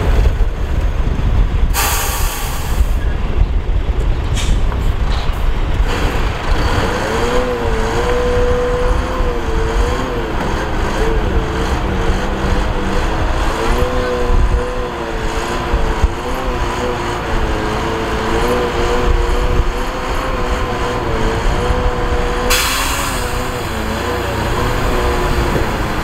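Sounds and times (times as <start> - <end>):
diesel truck engine running: 0.0 - 26.0
air brake hiss: 1.7 - 3.0, 22.5 - 23.6
hydraulic whine: 1.7 - 3.2, 5.8 - 26.0.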